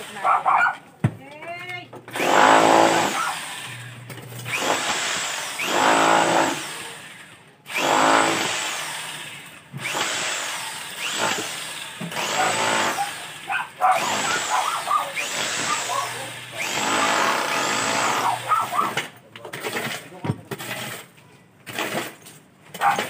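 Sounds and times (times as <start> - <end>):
electric drill bursts: 2.1 - 19.1.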